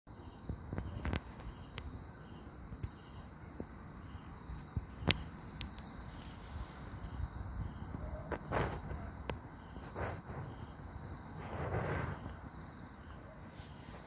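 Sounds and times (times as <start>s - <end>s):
night insects trilling: 0.1s - 14.0s
sharp clicks: 5.0s - 5.9s.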